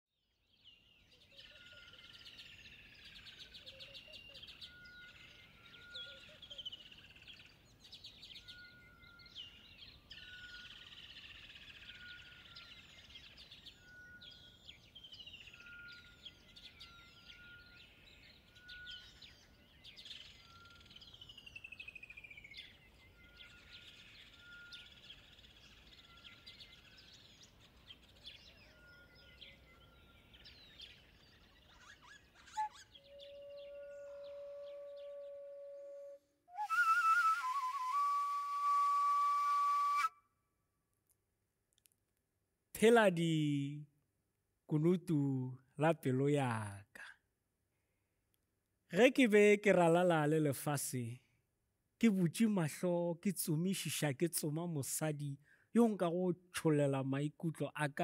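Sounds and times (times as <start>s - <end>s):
birds chirping and trilling: 0.3s - 40.1s.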